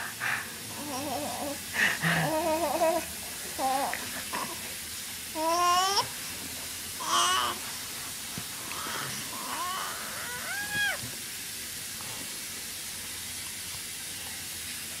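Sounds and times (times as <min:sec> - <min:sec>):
steady hiss: 0:00.0 - 0:15.0
baby squealing: 0:08.8 - 0:11.1.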